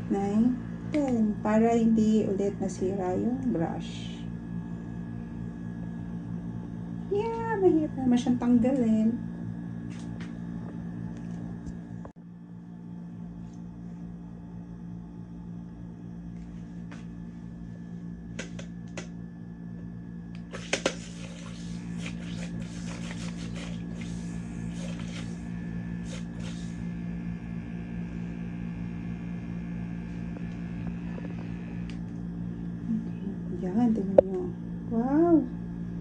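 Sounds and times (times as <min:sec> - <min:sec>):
small motor humming: 0:20.4 - 0:35.4.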